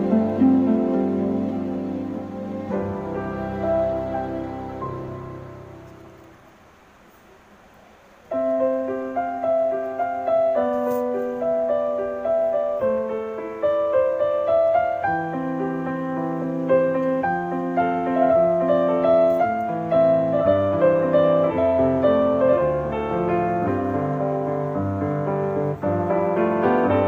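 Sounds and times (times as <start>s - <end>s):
piano piece: 0.0s - 27.0s.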